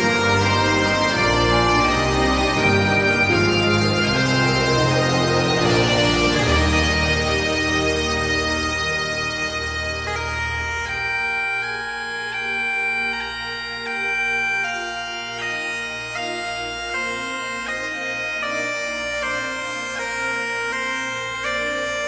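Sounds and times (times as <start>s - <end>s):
bagpipes playing a tune: 0.0s - 22.0s.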